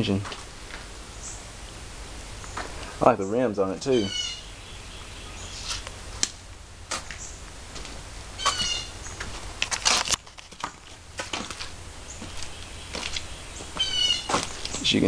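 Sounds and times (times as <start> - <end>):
steady low hum: 0.0 - 15.0
camera handling rustles: 9.2 - 11.8.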